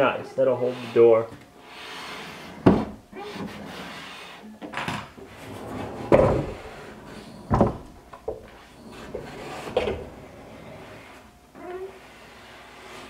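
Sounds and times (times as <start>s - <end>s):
sliding barn door rumble: 5.2s - 8.0s, 8.6s - 11.2s
heavy wooden knocks: 7.5s - 8.4s.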